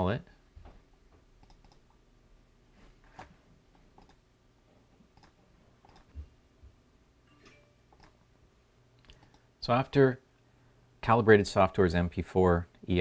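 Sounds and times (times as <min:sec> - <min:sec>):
computer mouse clicks: 0:01.4 - 0:01.9, 0:03.9 - 0:04.2, 0:05.1 - 0:06.1, 0:07.9 - 0:08.2, 0:09.0 - 0:09.5.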